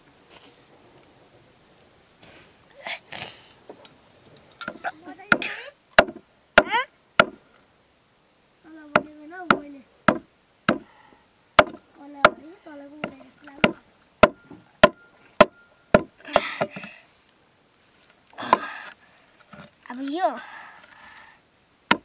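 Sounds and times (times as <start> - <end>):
blade chopping on wooden block: 4.7 - 7.4, 9.0 - 10.9, 11.6 - 12.4, 13.0 - 16.8.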